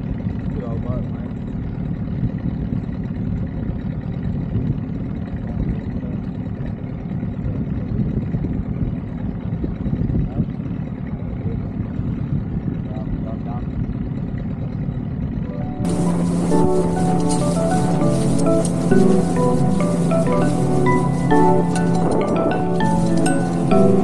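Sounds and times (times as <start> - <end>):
outboard motor running: 0.0 - 15.5.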